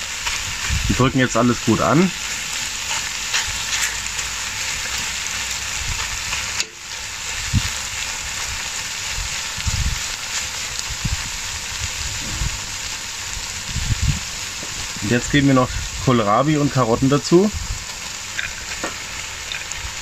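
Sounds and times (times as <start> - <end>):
meat sizzling in hot oil: 0.0 - 20.0
dull low thumps: 10.9 - 12.8, 13.6 - 14.9.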